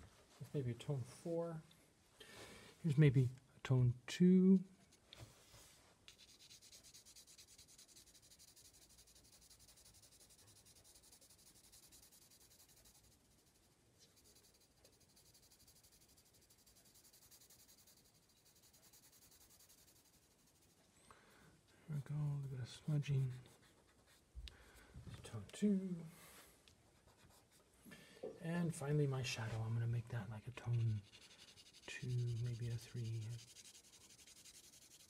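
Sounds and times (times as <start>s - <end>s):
pencil scratching on paper: 6.1s - 20.8s, 22.9s - 24.3s, 27.0s - 27.6s, 30.5s - 35.0s.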